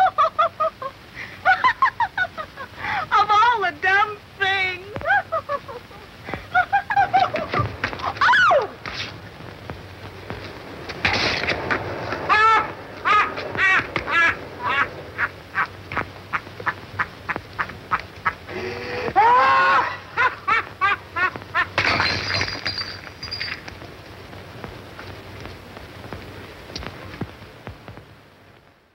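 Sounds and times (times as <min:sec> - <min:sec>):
man wailing: 0:12.3 - 0:14.9, 0:18.5 - 0:20.3.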